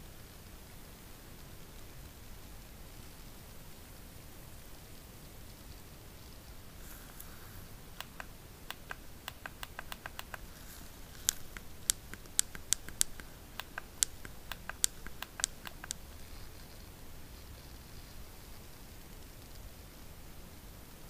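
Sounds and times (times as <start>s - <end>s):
phone buttons clicking: 7.2s - 16.1s.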